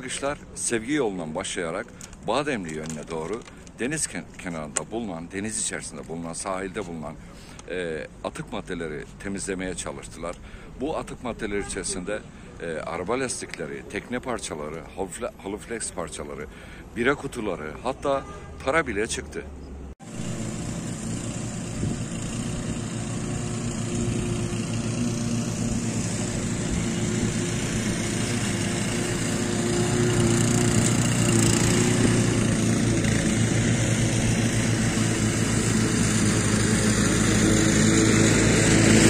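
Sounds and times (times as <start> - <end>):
lawn mower engine running: 20.0 - 39.0.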